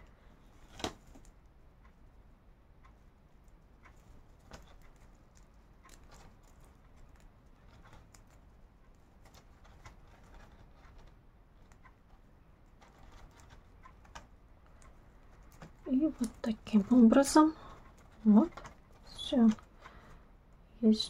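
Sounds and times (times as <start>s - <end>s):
paper yarn crackling with crochet hook: 3.5s - 20.2s.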